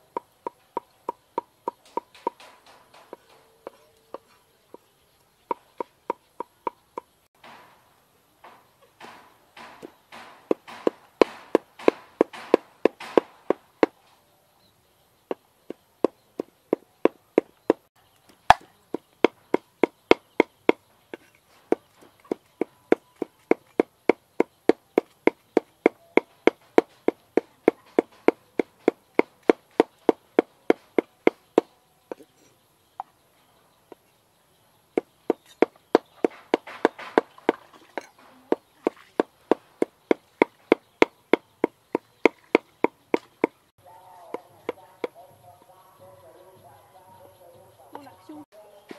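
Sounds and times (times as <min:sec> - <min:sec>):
cleaver chopping on wooden block: 0:09.0 - 0:14.0, 0:18.4 - 0:32.3, 0:35.0 - 0:43.6.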